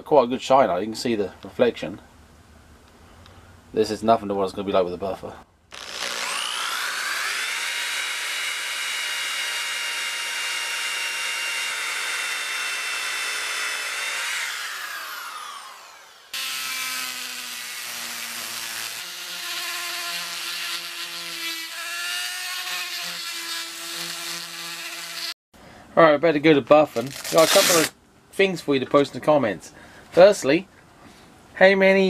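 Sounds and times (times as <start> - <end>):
rotary tool sanding metal: 5.7 - 25.4
orbital sander on metal: 5.8 - 25.3.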